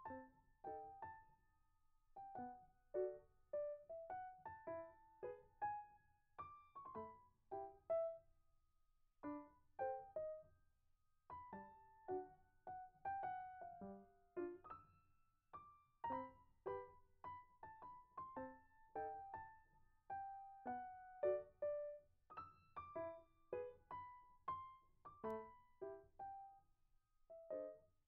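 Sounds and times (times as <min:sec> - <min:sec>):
light keyboard melody: 0:02.2 - 0:08.2, 0:11.3 - 0:14.8, 0:15.6 - 0:26.6, 0:27.3 - 0:27.8.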